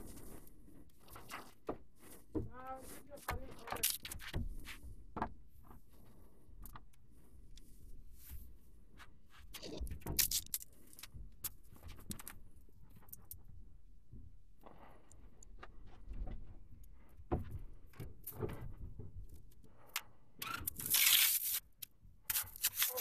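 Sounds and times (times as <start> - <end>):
scraping and rustling: 22.3 - 23.0.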